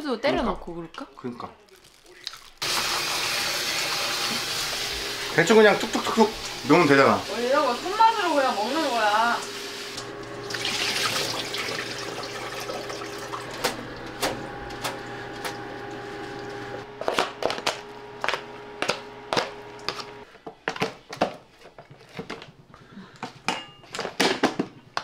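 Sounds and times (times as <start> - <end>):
electrical hum: 2.6 - 20.3
spoon scraping plastic tray: 17.0 - 20.1.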